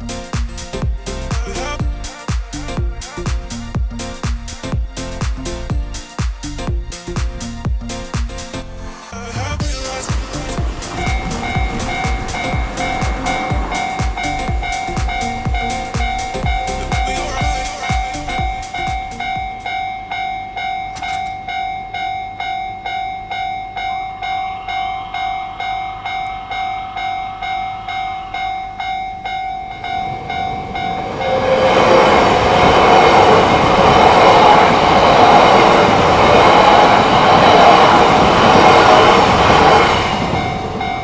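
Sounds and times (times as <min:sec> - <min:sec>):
train passing: 0:09.0 - 0:41.0
level crossing bell ringing: 0:10.0 - 0:32.1.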